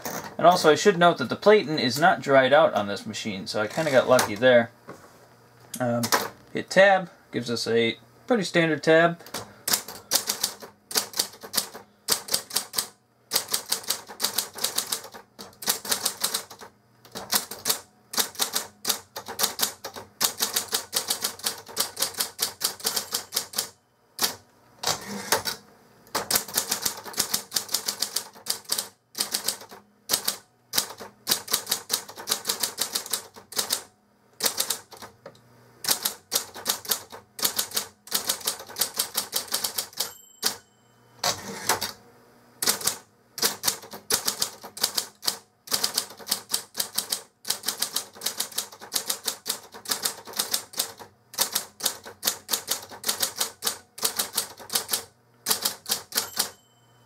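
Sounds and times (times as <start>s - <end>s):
typewriter keystrokes clacking: 9.2s - 25.6s, 26.2s - 33.8s, 34.4s - 35.1s, 35.9s - 40.6s, 42.6s - 56.6s
faint typewriter motor hum: 9.2s - 35.2s, 35.8s - 40.6s, 41.2s - 42.0s, 42.6s - 56.7s.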